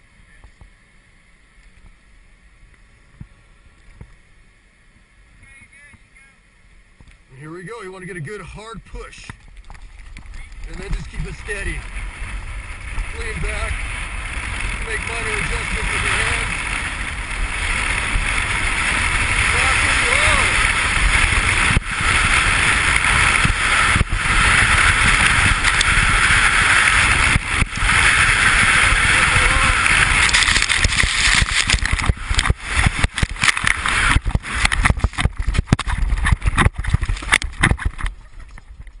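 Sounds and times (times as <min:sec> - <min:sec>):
wind rushing over microphone: 0:07.9 - 0:39.0
knocks and thuds in snow: 0:10.3 - 0:39.0.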